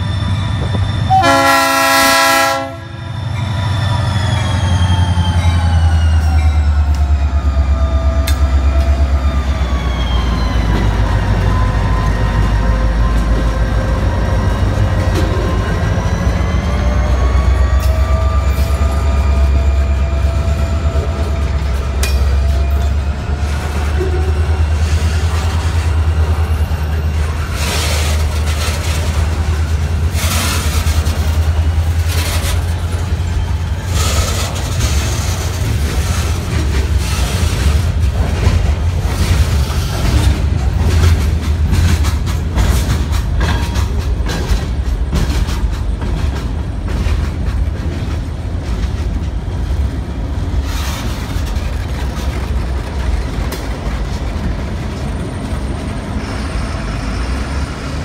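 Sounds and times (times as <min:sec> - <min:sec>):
diesel locomotive passing: 0:00.0 - 0:58.0
freight train rumbling past: 0:00.0 - 0:58.0
wheels clanking and clattering: 0:20.7 - 0:56.6.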